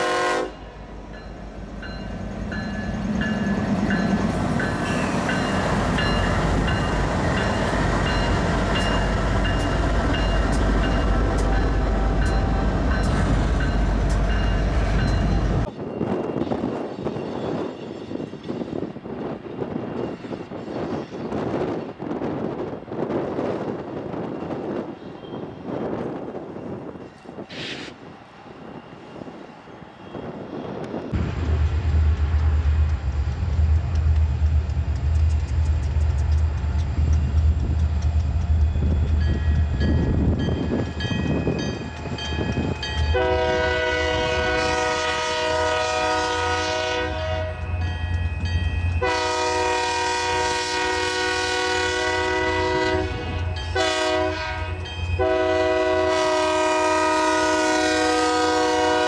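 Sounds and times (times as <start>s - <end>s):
locomotive air horn blasts: 0.0s - 0.8s, 43.1s - 47.7s, 49.0s - 59.0s.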